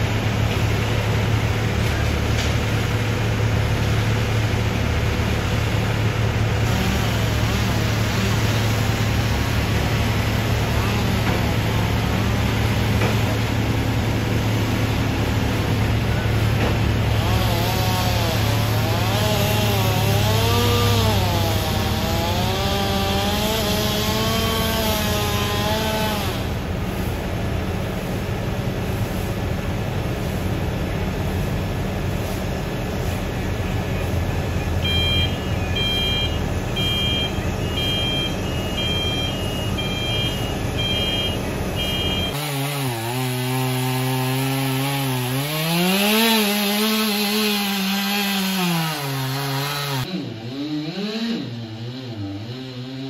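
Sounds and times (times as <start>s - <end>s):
crane engine running: 0.0s - 42.4s
chainsaw cutting wood: 3.9s - 26.7s, 34.8s - 53.0s
alarm beeping: 34.6s - 42.4s.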